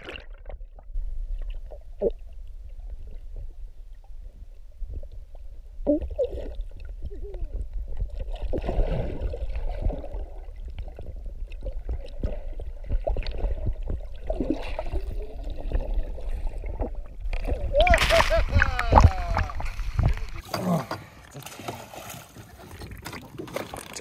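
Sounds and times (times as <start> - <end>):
low underwater rumble: 0.0 - 20.4
water gurgling: 0.0 - 21.6, 22.4 - 24.0.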